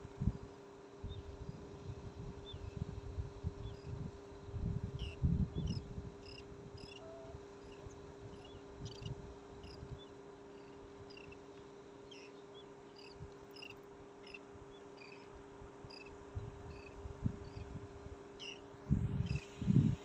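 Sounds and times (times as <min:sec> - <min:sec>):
wind buffeting microphone: 0:00.0 - 0:07.4, 0:16.3 - 0:18.2, 0:18.8 - 0:20.0
faint steady hum: 0:00.0 - 0:20.0.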